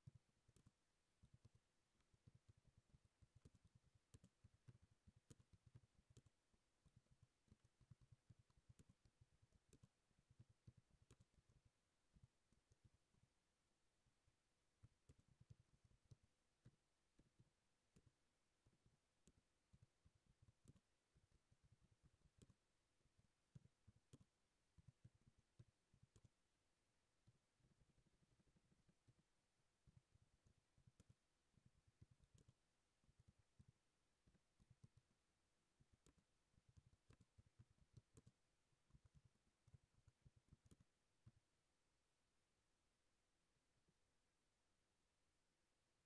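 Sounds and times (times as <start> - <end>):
typing on computer keyboard: 0.0 - 12.9, 31.9 - 35.2, 35.8 - 41.4
computer keyboard typing: 32.0 - 32.6, 35.9 - 41.4.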